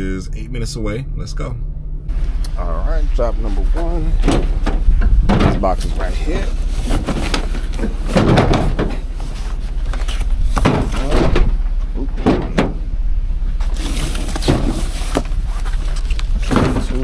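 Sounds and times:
low steady hum: 0:00.0 - 0:17.0
knocks and thuds: 0:04.2 - 0:06.0, 0:06.8 - 0:09.3, 0:10.5 - 0:12.8, 0:16.4 - 0:17.0.

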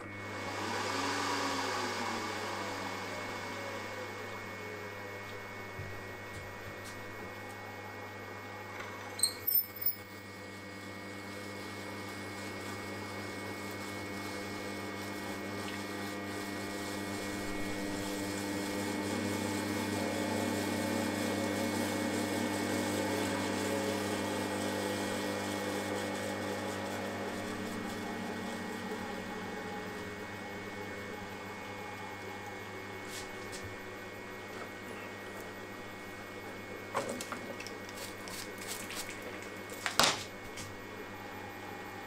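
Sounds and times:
drill squeaks: 0:09.2 - 0:10.1.

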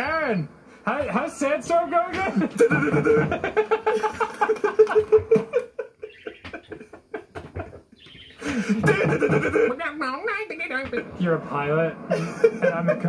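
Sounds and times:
cartoon laughing: 0:02.2 - 0:07.7, 0:08.4 - 0:09.9, 0:12.1 - 0:13.0.

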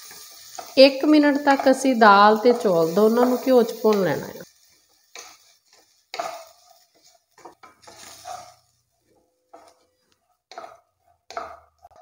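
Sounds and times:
spatula scraping steel pot: 0:04.8 - 0:12.0.

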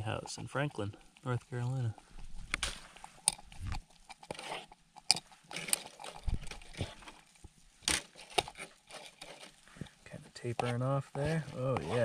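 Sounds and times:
cooking gear clicks and knocks: 0:05.0 - 0:07.2.

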